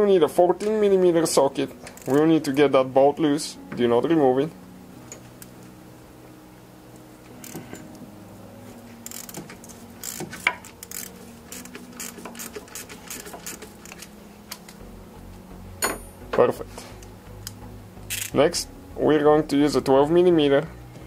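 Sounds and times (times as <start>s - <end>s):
ratchet wrench clicking: 9.0s - 14.1s, 18.1s - 18.4s.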